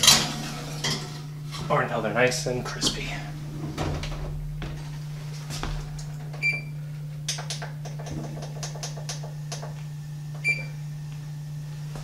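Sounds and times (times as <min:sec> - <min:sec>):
steady low hum: 0:00.0 - 0:12.0
oven control panel beep: 0:06.4 - 0:06.8, 0:10.4 - 0:10.8.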